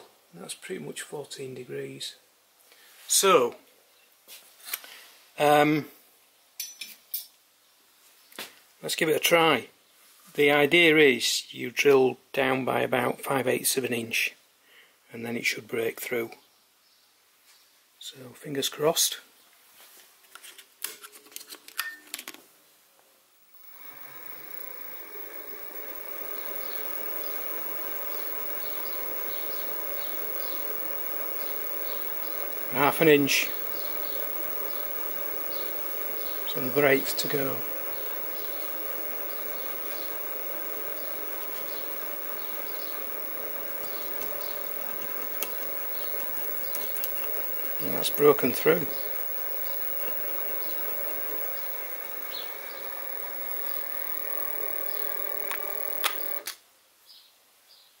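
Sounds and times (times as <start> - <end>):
mill motor whining: 23.5 - 56.5.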